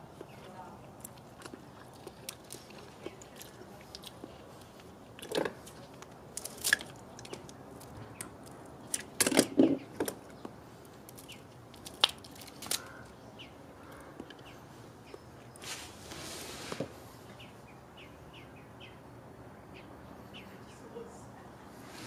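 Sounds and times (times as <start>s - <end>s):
crab shells cracking: 5.2s - 10.2s, 11.1s - 13.1s.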